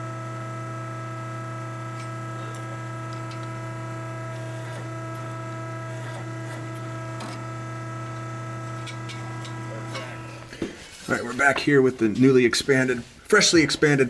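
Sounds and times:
machine electric hum: 0.0s - 10.7s.

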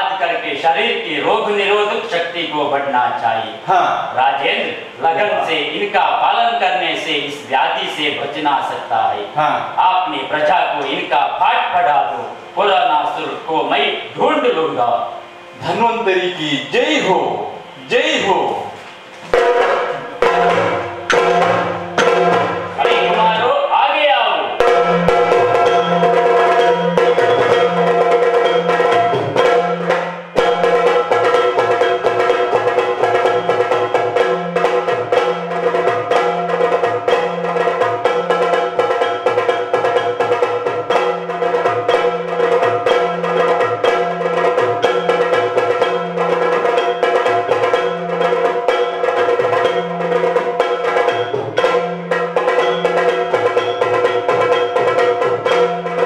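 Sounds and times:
steady drone: 8.8s - 56.0s
drums beating fast dance rhythm: 18.6s - 23.7s, 24.5s - 56.0s.

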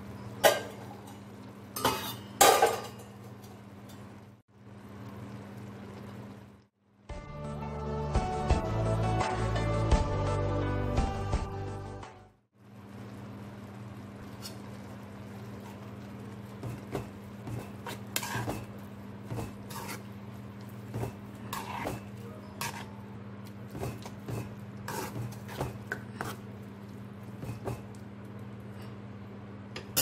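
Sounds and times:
spoon scraping a metal pan: 1.8s - 2.4s, 17.5s - 20.2s, 20.9s - 23.0s, 23.8s - 26.4s.

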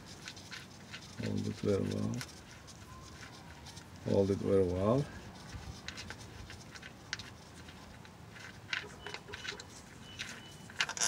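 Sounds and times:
faint squeaks: 0.0s - 4.2s, 7.3s - 11.0s
faint metallic clicks and scraping: 0.0s - 11.0s.

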